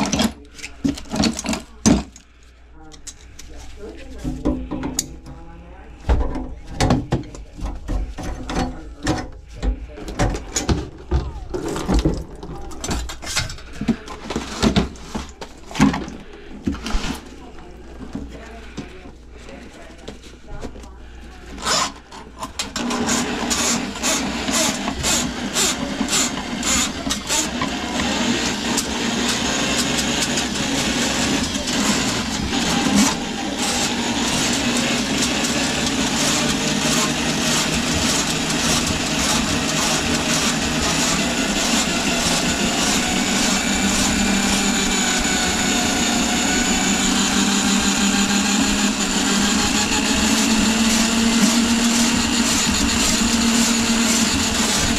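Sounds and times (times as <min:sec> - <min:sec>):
drain auger clicking: 0:22.6 - 0:54.9
drain auger motor whine: 0:22.7 - 0:54.9.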